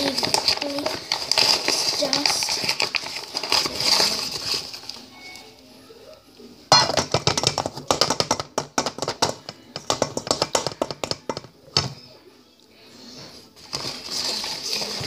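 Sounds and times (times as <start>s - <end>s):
rapid clicks and rustles: 0.0s - 5.1s, 13.6s - 15.0s.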